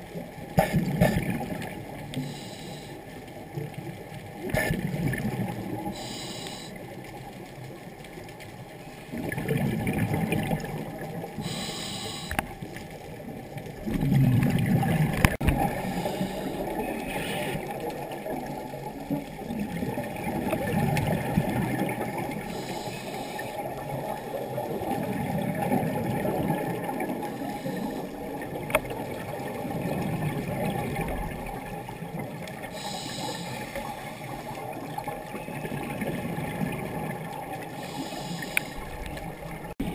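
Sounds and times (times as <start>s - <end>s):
exhaled air bubbling: 0.0s - 39.9s
regulator breathing hiss: 2.2s - 3.0s, 5.9s - 6.8s, 11.4s - 12.4s, 15.8s - 17.6s, 22.5s - 23.6s, 32.7s - 34.0s, 37.8s - 38.9s.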